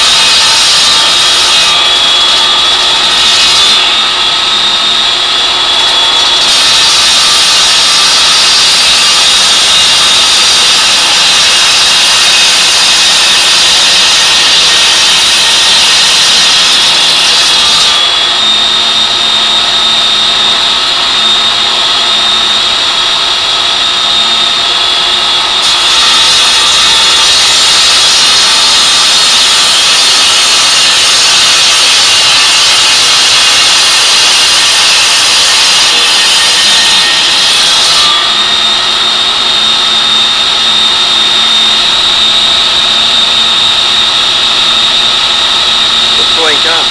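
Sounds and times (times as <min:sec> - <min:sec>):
brick saw cutting concrete: 0:00.0 - 0:46.9.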